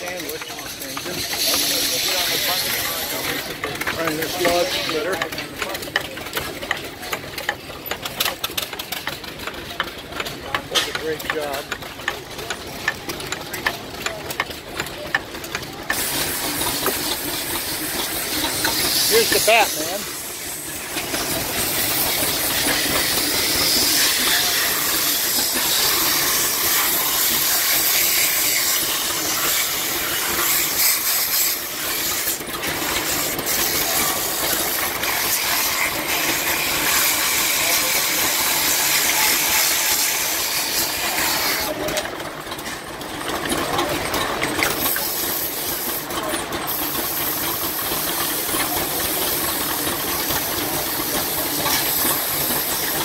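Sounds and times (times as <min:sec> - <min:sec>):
lathe running: 0:00.0 - 0:53.0
sandpaper sanding wood: 0:15.9 - 0:41.7, 0:46.7 - 0:53.0.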